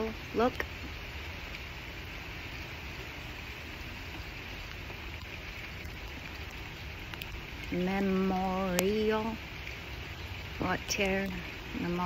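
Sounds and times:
steady rain falling: 0:00.0 - 0:12.0
faint drip ticks: 0:04.1 - 0:12.0.

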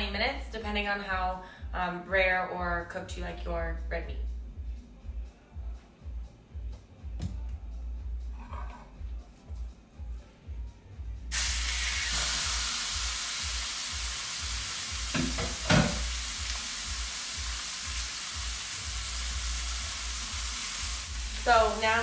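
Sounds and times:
steak sizzling in a skillet: 0:11.3 - 0:22.0.

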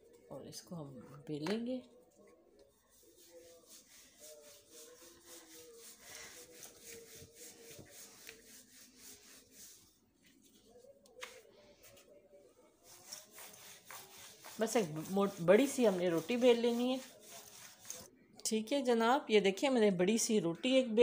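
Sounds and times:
rolling pin rubbing on dough: 0:02.8 - 0:10.8, 0:12.8 - 0:18.1.

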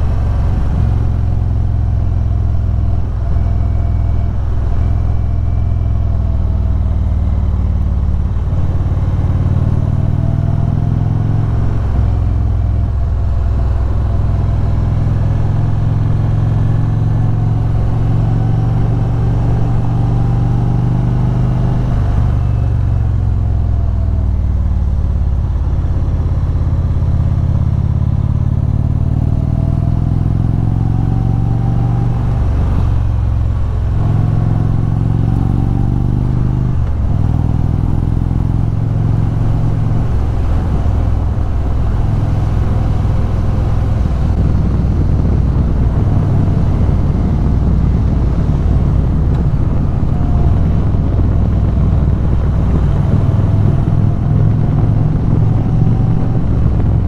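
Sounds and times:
motorcycle engine: 0:00.0 - 0:57.0
wind noise: 0:00.0 - 0:57.0.

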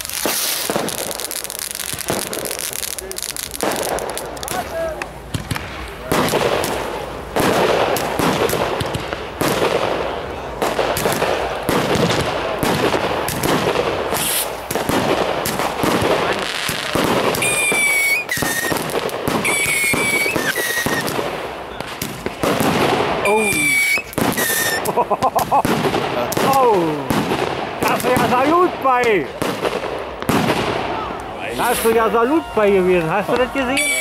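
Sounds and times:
firework whistles: 0:00.0 - 0:04.3, 0:13.3 - 0:21.2, 0:21.8 - 0:25.0, 0:31.5 - 0:34.0
firework shells bursting: 0:00.0 - 0:32.2
firework crackling: 0:00.0 - 0:34.0.

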